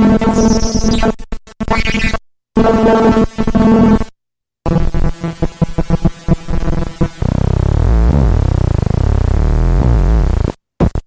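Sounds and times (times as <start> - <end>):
glitchy buzzy electronic tones: 0.0 - 2.2, 6.5 - 11.0.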